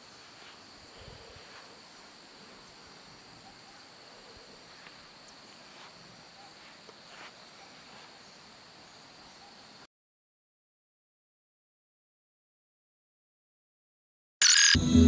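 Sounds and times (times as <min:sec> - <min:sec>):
insect chorus drone: 0:00.0 - 0:09.9.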